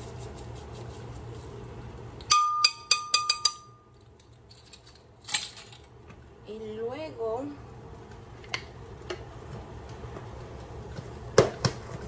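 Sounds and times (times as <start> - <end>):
spoon tapping glass rim: 2.2 - 3.9
glass ringing: 2.3 - 3.9.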